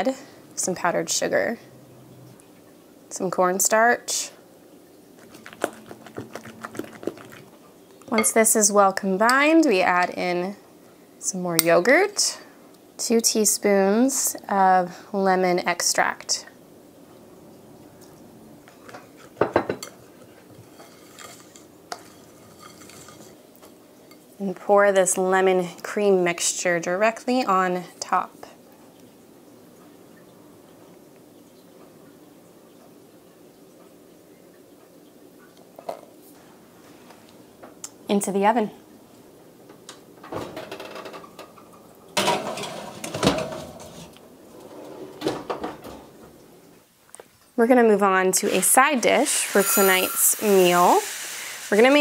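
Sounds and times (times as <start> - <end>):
metal pan scraping on oven rack: 20.6 - 23.4, 42.2 - 45.7, 48.6 - 51.0.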